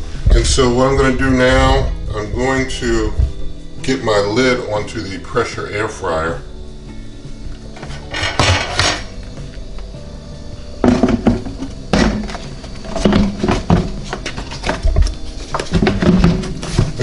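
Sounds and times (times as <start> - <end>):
background music: 0.0 - 17.0
lid knocking and scraping on pot: 7.8 - 9.1, 10.8 - 16.9.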